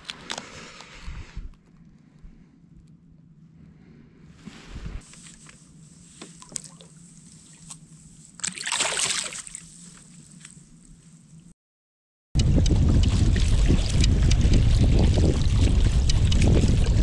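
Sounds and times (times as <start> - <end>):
fish splashing into water: 8.4 - 10.0.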